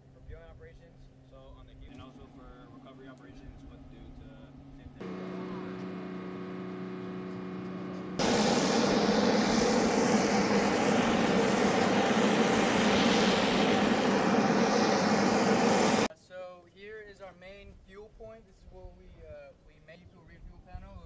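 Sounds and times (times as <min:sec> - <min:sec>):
aircraft engine noise: 0:01.9 - 0:16.1
hum of even tones: 0:04.9 - 0:16.1.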